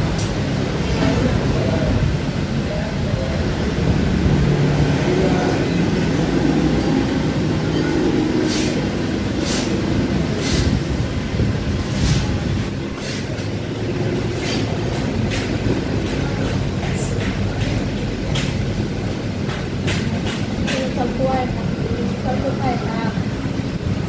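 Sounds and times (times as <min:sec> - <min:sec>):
steady low rumble: 0:00.0 - 0:24.0
cutlery clinking and scraping on plates: 0:14.2 - 0:18.6.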